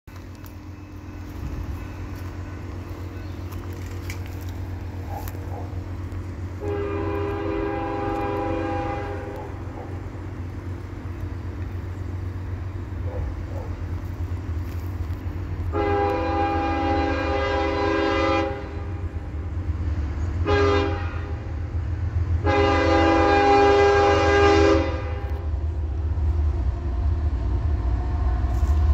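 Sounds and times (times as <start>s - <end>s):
locomotive rumble: 0.0s - 28.9s
locomotive air horn: 6.5s - 9.7s, 15.6s - 19.3s, 20.4s - 21.7s, 22.4s - 25.5s.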